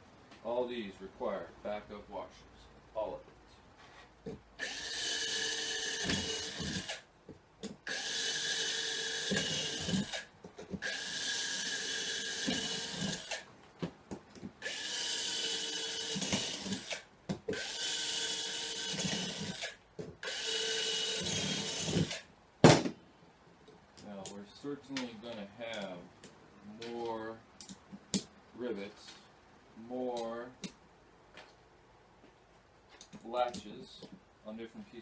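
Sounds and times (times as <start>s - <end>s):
cordless drill running: 4.6s - 7.0s, 7.9s - 10.2s, 10.8s - 13.4s, 14.6s - 22.2s.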